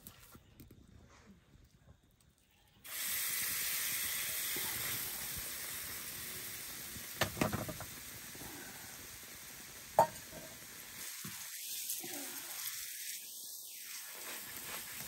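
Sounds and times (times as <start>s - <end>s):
dough sizzling on hot griddle: 2.4s - 15.0s.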